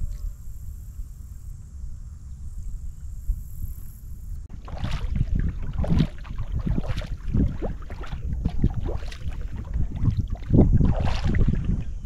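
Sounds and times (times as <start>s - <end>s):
steady low rumble: 0.0s - 12.0s
paddle splashing water: 4.5s - 12.0s.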